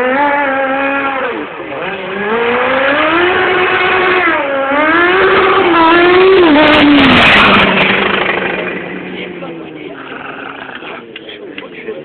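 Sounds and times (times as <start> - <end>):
motorcycle accelerating past: 0.0 - 10.7.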